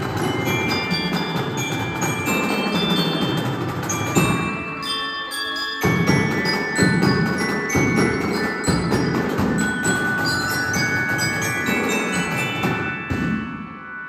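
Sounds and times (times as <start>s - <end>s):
steady drum beat: 0.0s - 4.7s, 5.8s - 13.5s
marching band playing: 0.0s - 5.0s
glockenspiel melody: 0.0s - 14.0s.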